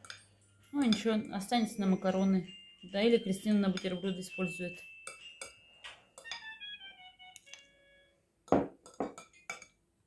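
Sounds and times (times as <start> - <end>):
metal spoon clinking on bowl: 0.0 - 6.7, 8.5 - 9.8.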